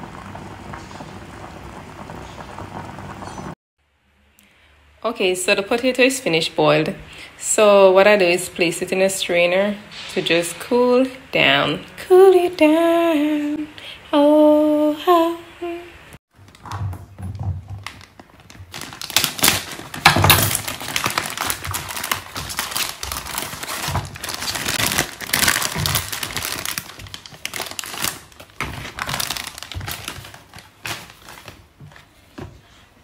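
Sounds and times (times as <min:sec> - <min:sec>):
crinkling and rustling: 0:16.3 - 0:33.0.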